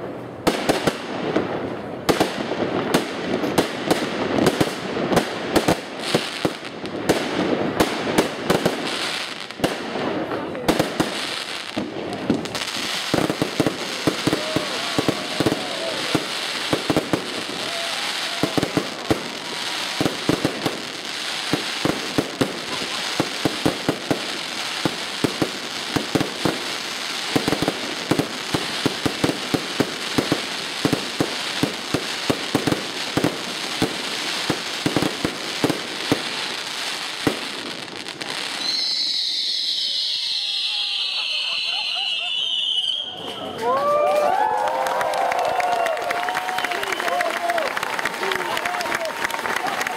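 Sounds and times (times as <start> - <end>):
firework bangs and crackles: 0.0 - 49.9
steady firework hiss: 11.2 - 39.0.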